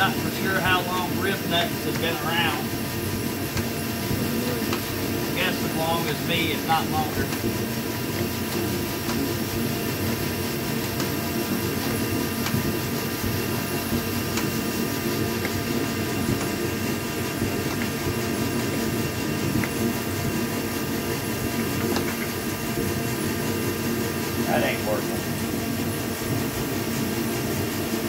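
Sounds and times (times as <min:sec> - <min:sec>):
machine humming: 0:00.0 - 0:28.0.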